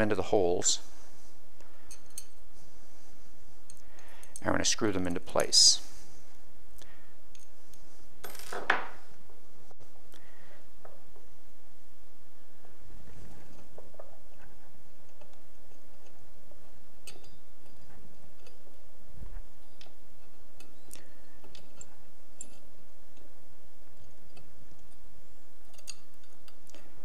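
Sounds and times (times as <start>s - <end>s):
light clicks of screws turning: 17.0s - 18.8s, 19.6s - 23.3s, 25.6s - 26.9s.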